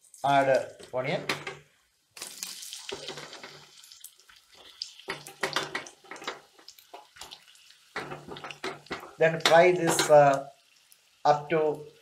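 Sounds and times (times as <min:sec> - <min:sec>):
onions clattering into pan: 0:00.7 - 0:03.8, 0:05.0 - 0:07.2, 0:08.0 - 0:10.4
onions sizzling in hot oil: 0:02.2 - 0:12.0.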